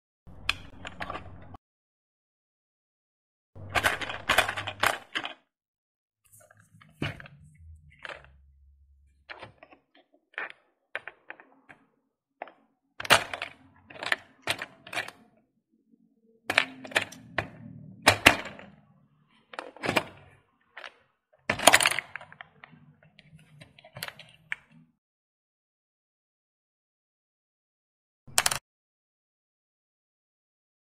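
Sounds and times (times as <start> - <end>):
plastic balls clattering: 3.6 - 5.4, 6.4 - 8.4
buttons clicking: 28.3 - 28.6.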